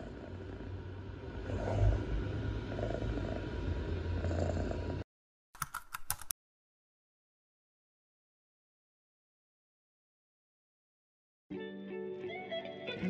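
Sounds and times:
quick run of clicks: 5.6 - 6.3.

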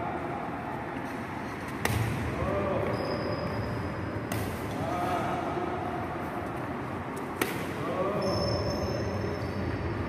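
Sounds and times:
racket striking shuttlecock: 1.7 - 2.3, 4.2 - 4.8, 7.2 - 7.8.

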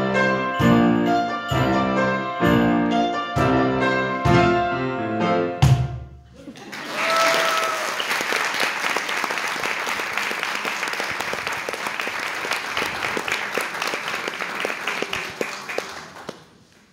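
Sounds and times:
audience applauding: 6.4 - 16.9.

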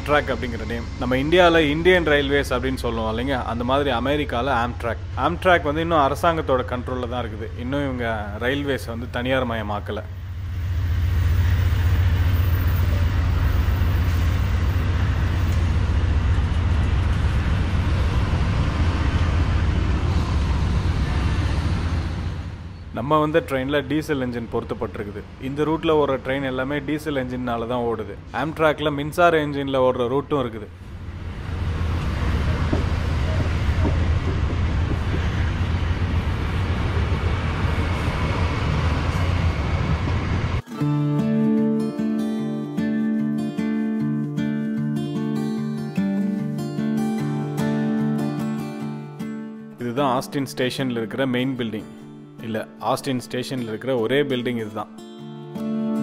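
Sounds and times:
diesel locomotive running: 0.0 - 29.0, 30.7 - 40.7.

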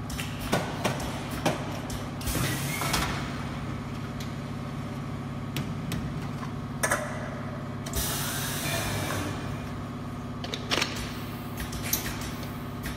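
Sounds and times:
hiss of released air: 8.0 - 8.8.

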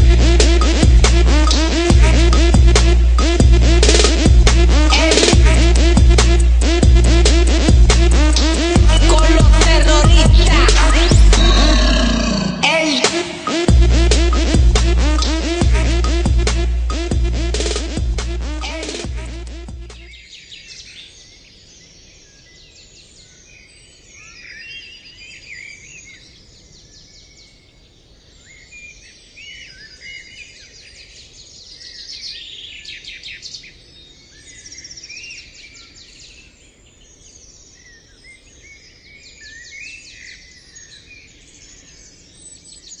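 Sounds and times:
birds chirping and trilling: 0.0 - 43.0.

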